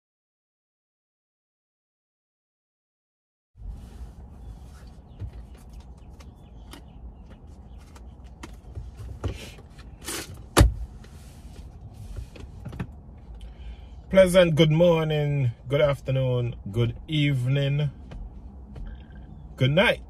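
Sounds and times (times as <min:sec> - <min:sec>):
low rumble inside car: 0:03.6 - 0:20.0.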